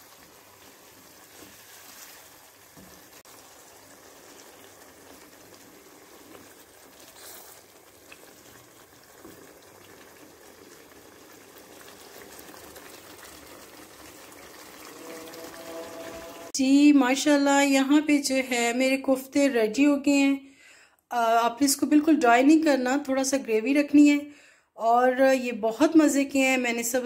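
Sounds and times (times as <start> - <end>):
spatula stirring: 0.0 - 9.9
thick gravy bubbling in a pan: 0.0 - 16.5.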